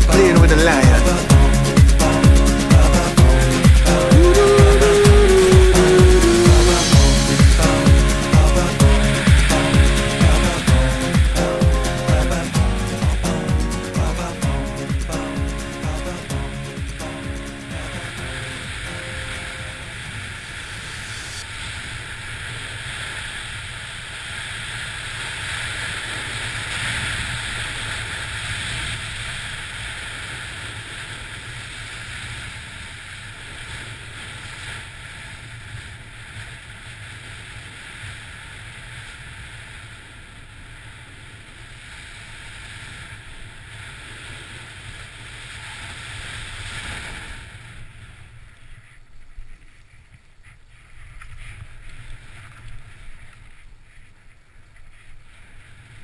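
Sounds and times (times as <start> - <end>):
snowboard carving over snow: 18.4 - 56.0.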